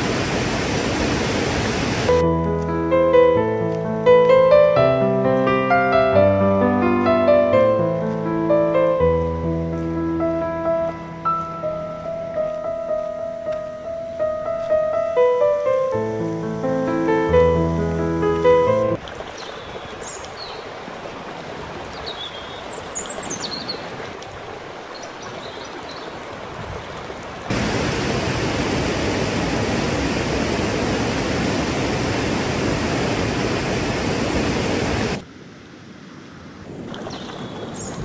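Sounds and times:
rushing river: 0.0 - 2.2, 3.6 - 38.0
piano music: 2.1 - 19.0
rapids roaring: 26.1 - 37.1.

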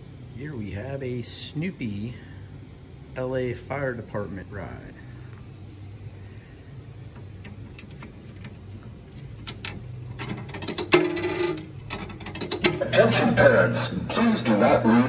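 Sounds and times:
low steady hum: 0.0 - 15.0
coins clicking and rattling: 5.6 - 12.9.

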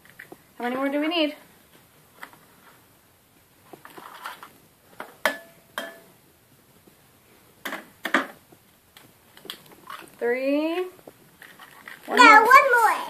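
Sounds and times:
egg knocking on glass bowl: 5.2 - 6.1.

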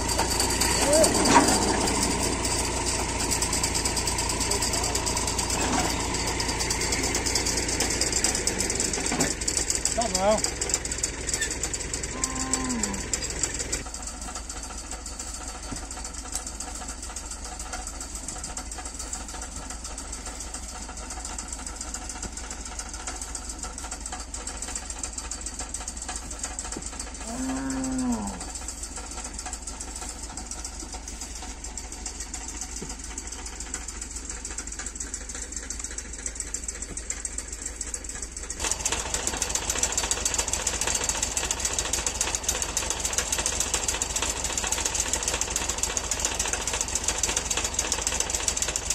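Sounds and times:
steady engine drone: 0.0 - 48.9
cattle mooing: 12.1 - 13.3, 27.2 - 28.5.

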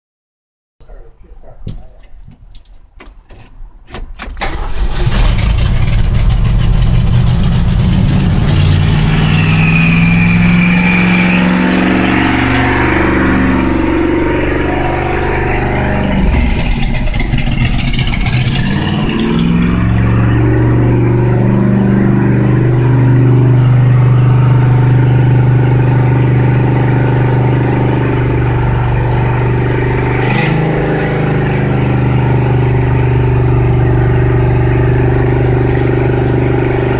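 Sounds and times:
truck engine starting and idling: 1.2 - 36.9
high squeal: 8.5 - 29.8.

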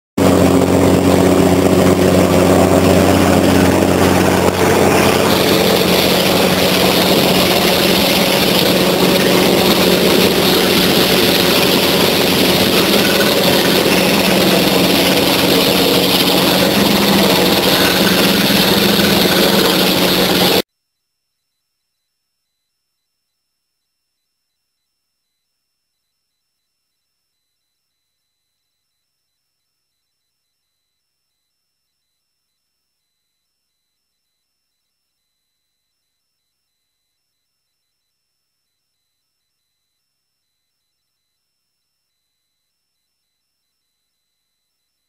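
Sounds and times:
drilling rig engine running: 0.2 - 20.6.

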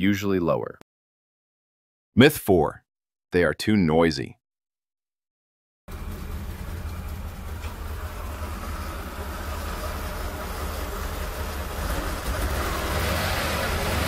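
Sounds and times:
car engine idling: 5.9 - 14.0.

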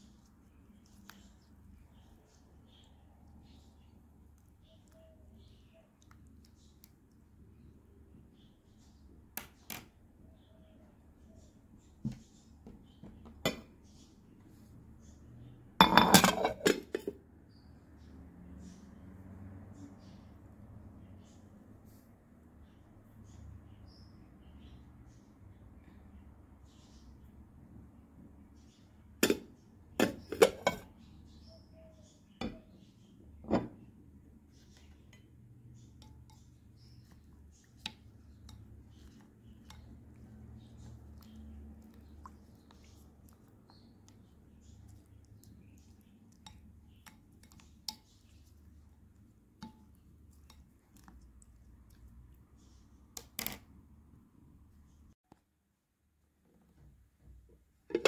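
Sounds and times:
ceramic dishes clinking: 15.8 - 17.2, 30.0 - 30.9, 33.4 - 33.8.

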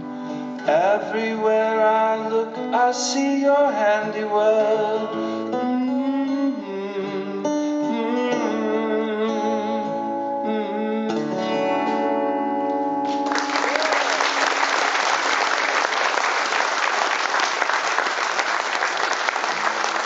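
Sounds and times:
acoustic guitar chord ringing: 0.0 - 13.5
audience applause: 13.1 - 20.0.

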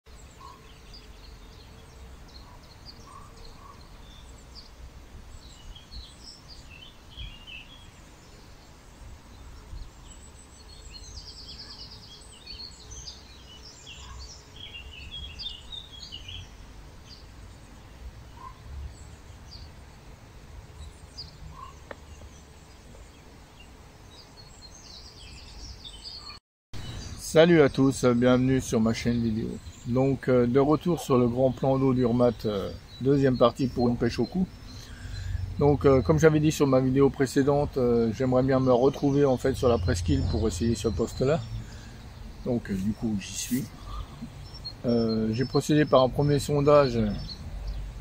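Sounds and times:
songbirds chirping: 0.1 - 48.0
low outdoor rumble: 39.2 - 44.4.

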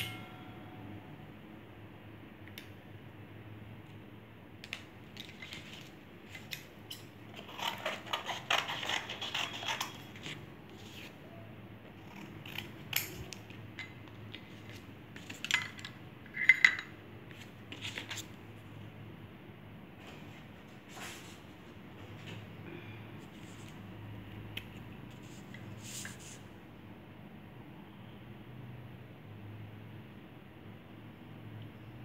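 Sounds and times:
sharp ringing clinks: 0.0 - 1.0
scissors cutting paper: 5.4 - 11.2, 12.0 - 13.4.

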